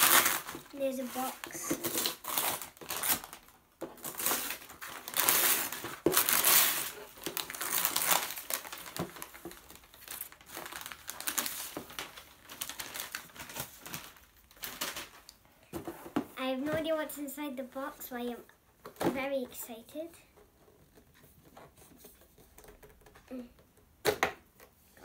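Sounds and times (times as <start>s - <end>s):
paper crinkling and rustling: 0.0s - 15.4s.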